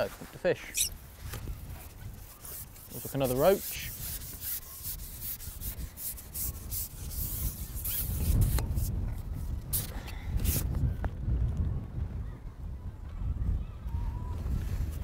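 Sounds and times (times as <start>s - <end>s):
rubbing and rustling handling noise: 0.0s - 8.9s
wind buffeting microphone: 0.7s - 15.0s.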